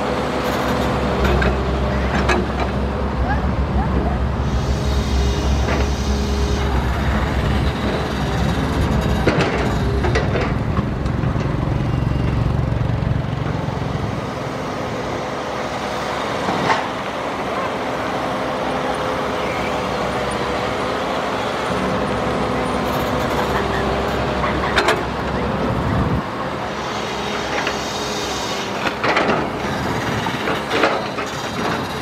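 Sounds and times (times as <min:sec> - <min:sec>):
excavator diesel engine under load: 0:00.0 - 0:32.0
excavator bucket digging: 0:07.1 - 0:11.7.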